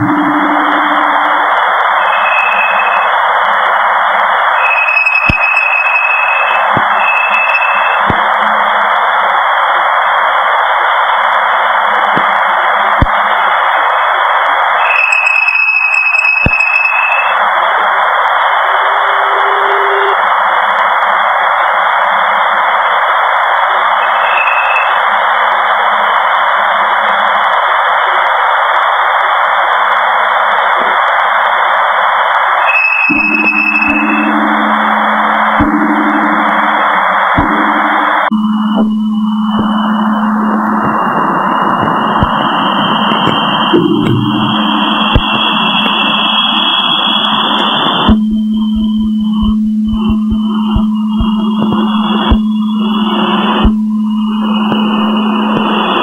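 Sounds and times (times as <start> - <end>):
short high tones: 0.0 - 3.2, 32.7 - 47.4
steady high tone: 0.0 - 9.0, 14.6 - 20.4, 24.0 - 25.4, 32.6 - 56.0
steady radio-like hiss: 0.0 - 56.0.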